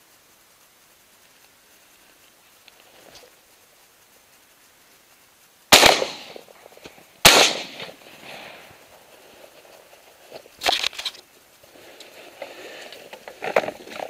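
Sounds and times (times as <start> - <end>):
shotgun shots echoing: 5.7 - 6.6, 7.2 - 8.7
clicks and rustling: 9.1 - 14.0.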